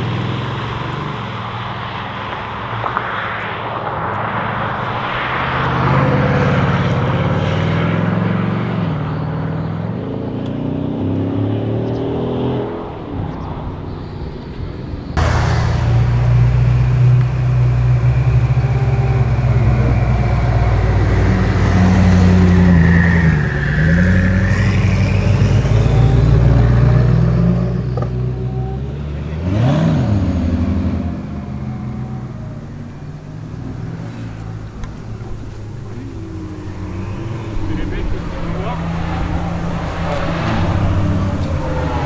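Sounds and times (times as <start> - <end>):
car engines running low speed: 0.0 - 42.0
engine rev blip: 15.2 - 28.7.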